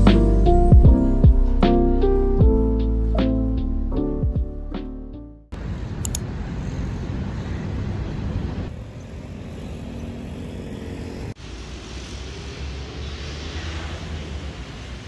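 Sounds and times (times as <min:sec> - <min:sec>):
street traffic rushing: 0:05.5 - 0:15.0.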